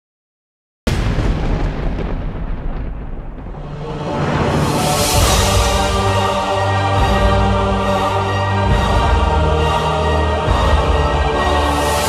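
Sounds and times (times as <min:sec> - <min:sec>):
loud boom with deep rumble: 0:00.9 - 0:07.5.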